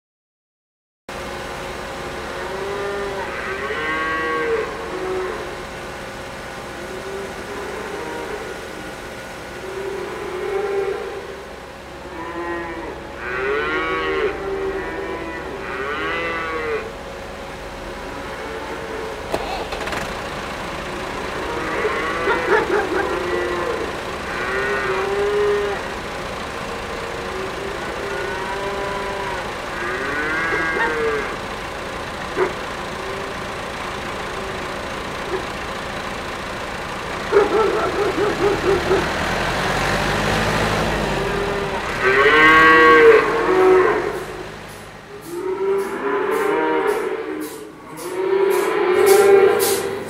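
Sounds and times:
cows mooing: 2.3 - 5.7, 6.8 - 11.4, 12.0 - 17.0, 18.0 - 20.0, 20.8 - 31.6, 37.3 - 50.0.

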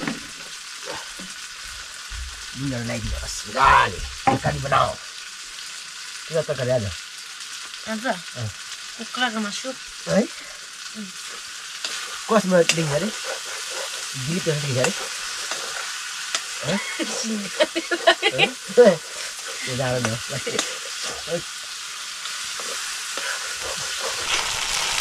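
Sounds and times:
curry sizzling in a pan: 0.0 - 25.0
spoon scraping a pan: 11.2 - 21.3.

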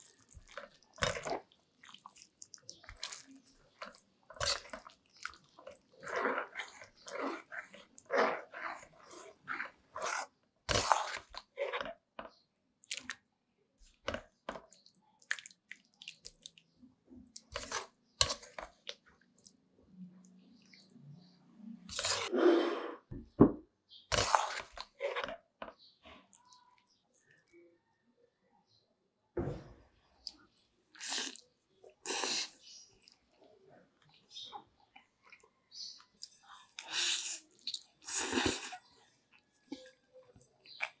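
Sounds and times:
spatula stirring in a metal pan: 2.7 - 11.8.

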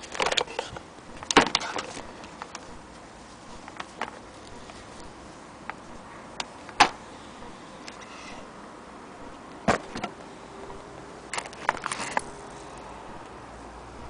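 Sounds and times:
plastic parts clicking: 11.3 - 12.4.

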